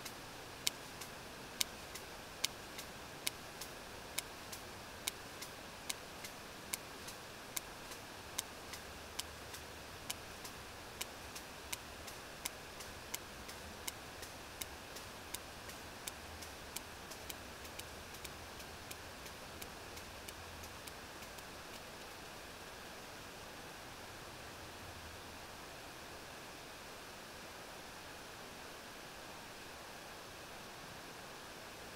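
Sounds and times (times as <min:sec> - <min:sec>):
whale echolocation clicks: 0:00.0 - 0:21.9
hydrophone hiss: 0:00.0 - 0:31.9.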